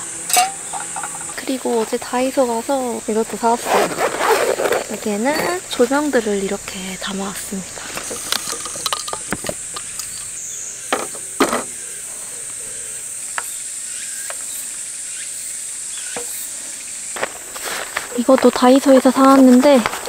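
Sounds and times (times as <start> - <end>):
insects trilling: 0.0 - 20.0
lamps knocking on table: 10.9 - 11.7.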